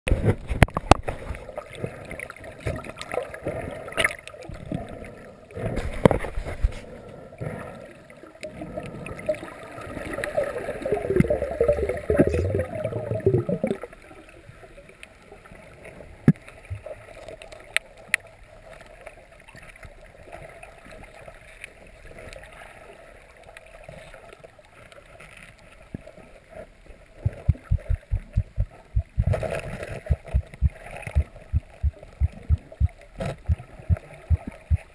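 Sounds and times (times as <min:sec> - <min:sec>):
sharp underwater clicks and knocks: 0:00.1 - 0:01.4, 0:05.8 - 0:06.9, 0:27.2 - 0:34.9
low underwater rushing: 0:00.1 - 0:14.3, 0:26.8 - 0:34.9
muffled underwater water wash: 0:00.1 - 0:34.9.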